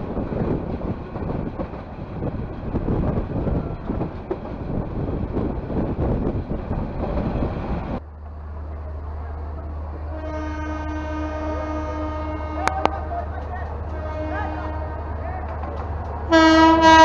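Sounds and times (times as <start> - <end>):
wind on microphone: 0.0 - 8.0
train low steady hum: 0.0 - 17.0
train rumbling along track: 0.0 - 17.0
train horn: 10.1 - 13.3, 13.9 - 15.2, 16.3 - 17.0.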